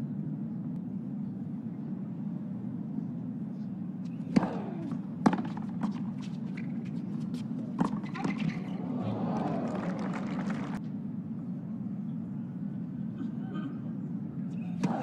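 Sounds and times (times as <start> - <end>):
crowd and court hum: 0.8 - 15.0
tennis ball struck by racket: 4.3 - 6.2.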